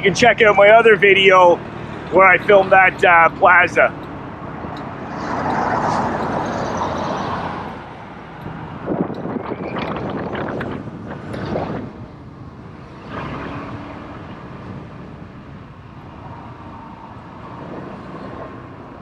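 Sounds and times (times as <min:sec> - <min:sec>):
wind rush: 0:04.3 - 0:19.0.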